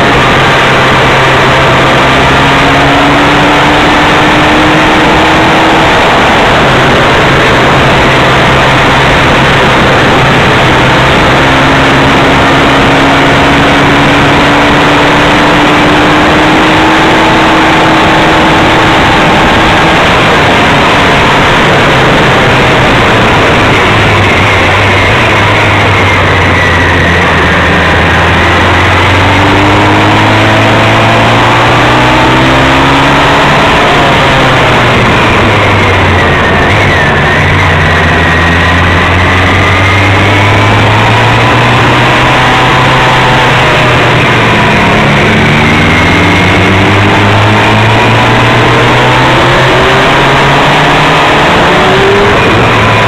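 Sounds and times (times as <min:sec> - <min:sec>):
motorcycle engine drone: 0:00.0 - 0:53.0
wind noise on microphone: 0:00.0 - 0:53.0.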